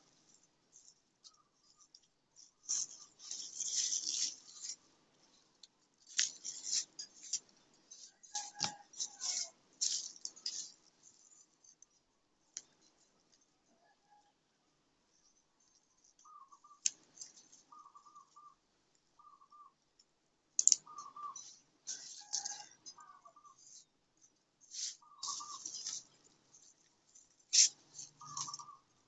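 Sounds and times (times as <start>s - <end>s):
basil leaves rustling: 2.4s - 11.4s, 24.6s - 28.7s.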